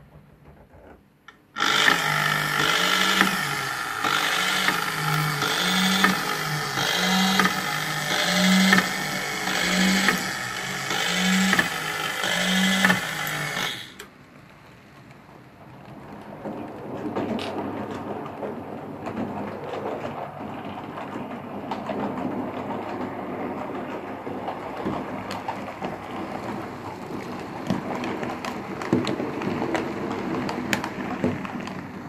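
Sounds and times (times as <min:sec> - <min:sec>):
geared electric motor whirring: 0:01.6 - 0:14.1.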